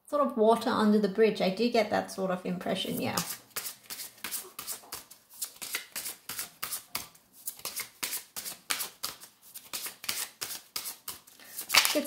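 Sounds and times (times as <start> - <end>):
cards being shuffled: 3.1 - 12.0.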